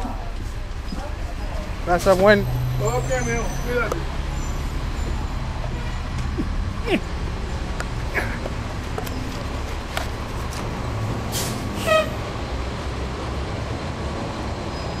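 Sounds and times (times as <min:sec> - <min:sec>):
bus diesel engine rumbling: 0:00.0 - 0:15.0
high squeak: 0:02.5 - 0:05.3.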